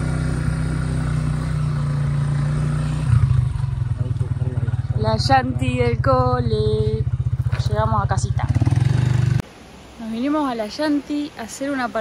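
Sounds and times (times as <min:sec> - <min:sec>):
vehicle engine running: 0:00.0 - 0:09.4.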